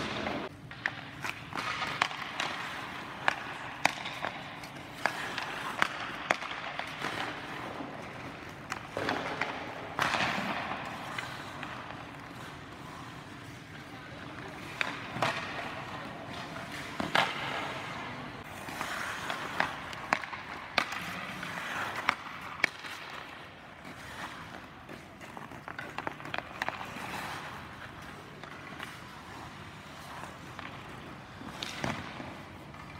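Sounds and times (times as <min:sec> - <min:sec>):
skates scraping on ice: 0:00.0 - 0:32.9
sticks clacking on pucks: 0:00.0 - 0:32.9.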